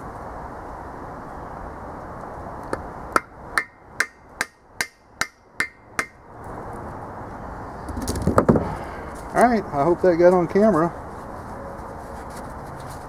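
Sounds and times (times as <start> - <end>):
hammer blows on metal: 3.2 - 6.2.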